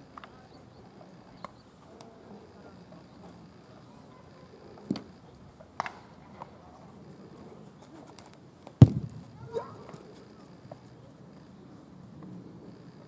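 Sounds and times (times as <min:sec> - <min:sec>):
baseballs smacking into gloves: 0:08.1 - 0:10.1.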